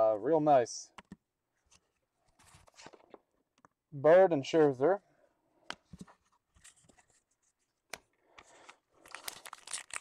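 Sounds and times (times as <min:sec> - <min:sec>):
wrapper crinkling and tearing: 0:08.5 - 0:10.0.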